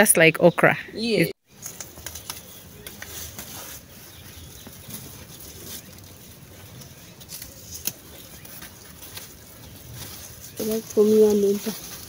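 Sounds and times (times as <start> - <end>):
leaves rustling: 1.4 - 12.0
stalks snapping: 7.2 - 8.1.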